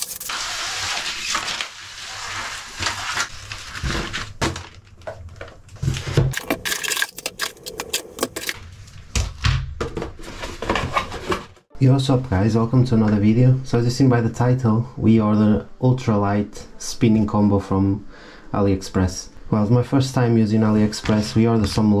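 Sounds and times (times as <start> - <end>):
packaging rustling and scraping: 0.0 - 9.1, 9.9 - 11.6.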